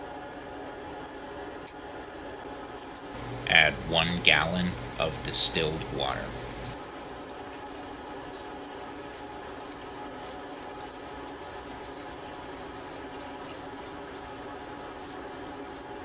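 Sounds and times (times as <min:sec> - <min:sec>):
water pouring into glass beaker: 0:04.3 - 0:16.0.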